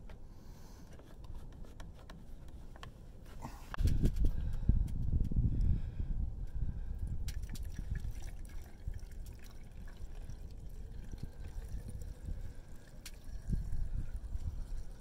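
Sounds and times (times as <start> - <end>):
fuel pouring trickle: 7.3 - 15.0.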